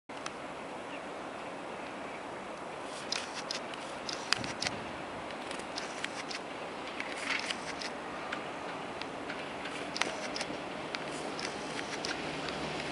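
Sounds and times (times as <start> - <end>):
wheels clicking over rail joints: 2.9 - 12.9
train running hiss: 5.8 - 12.9.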